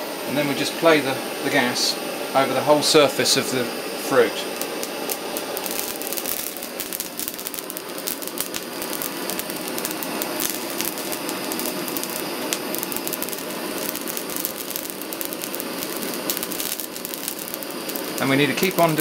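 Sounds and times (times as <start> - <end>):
blowtorch flame hissing: 0.0 - 19.0
pepper skin crackling: 4.4 - 19.0.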